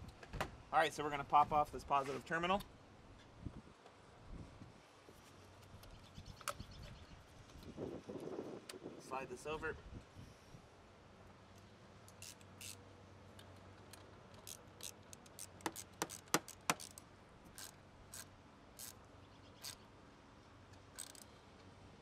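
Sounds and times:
metal clicks: 20.7 - 21.3.

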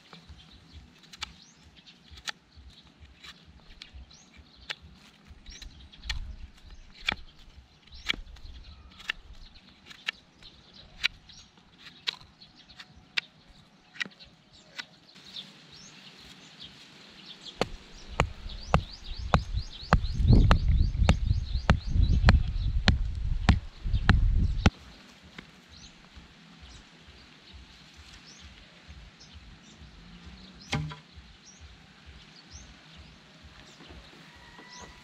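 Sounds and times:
birds chirping: 0.0 - 35.0
low thumps: 17.6 - 24.7.

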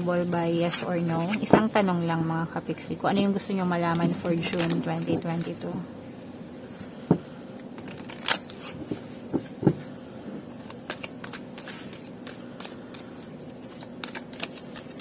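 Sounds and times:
faint steady hum: 0.0 - 15.0
cards being shuffled: 3.8 - 5.7, 7.7 - 9.9, 10.5 - 15.0.

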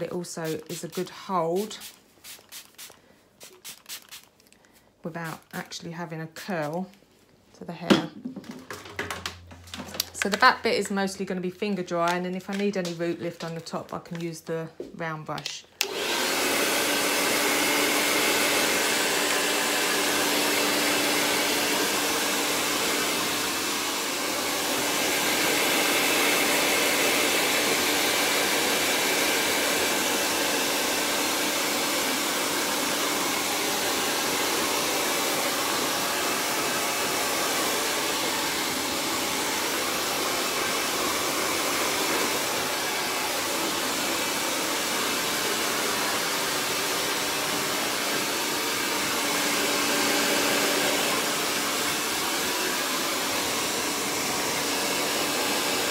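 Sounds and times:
hair dryer blowing: 0.0 - 4.3, 15.8 - 55.9.

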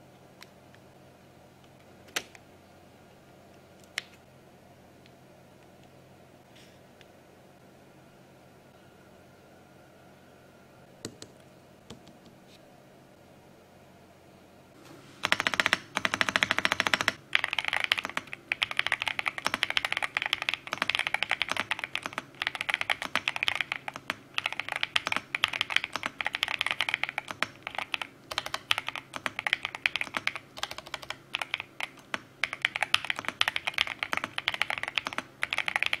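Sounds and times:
fast mechanical keyboard typing: 15.2 - 36.0.

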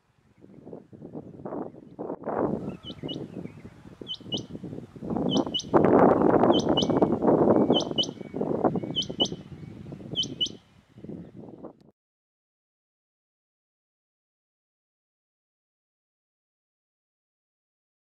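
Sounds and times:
quail calling short high squeaks: 6.5 - 7.0.

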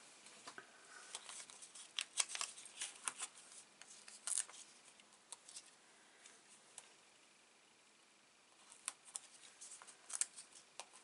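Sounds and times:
paper and plastic crinkling: 1.1 - 5.8, 8.6 - 11.0.

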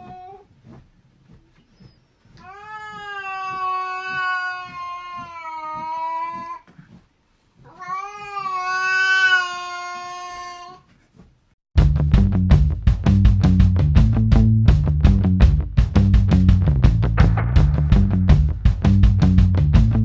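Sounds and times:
cat yowling: 2.4 - 6.7, 7.7 - 10.8.

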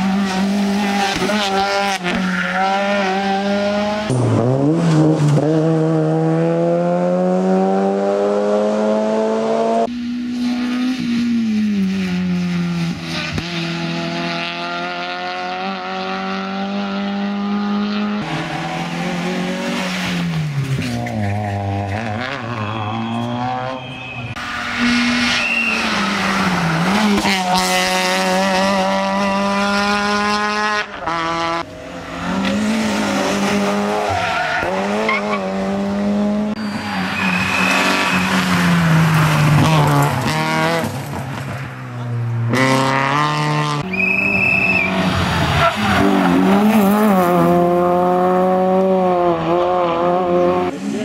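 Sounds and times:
rally car engines at high revs: 0.0 - 51.0
tyre squeals: 20.9 - 27.4, 36.6 - 38.6, 43.9 - 46.4.

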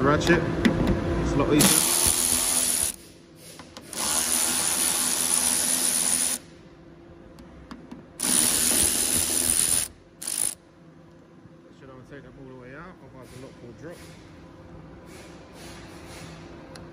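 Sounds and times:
cordless ratchet running: 1.6 - 3.0, 8.2 - 10.6.

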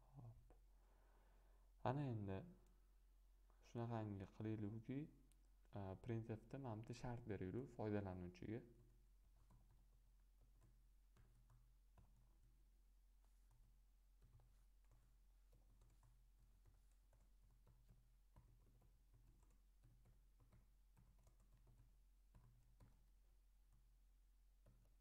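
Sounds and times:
computer keyboard typing: 8.8 - 12.6, 13.2 - 23.9, 24.6 - 25.0.

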